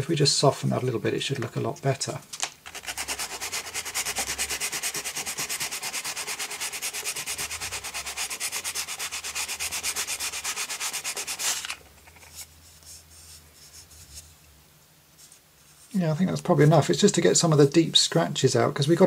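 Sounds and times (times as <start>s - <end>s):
sandpaper rubbing on plastic: 2.7s - 11.8s
faint handling noise: 11.5s - 17.0s.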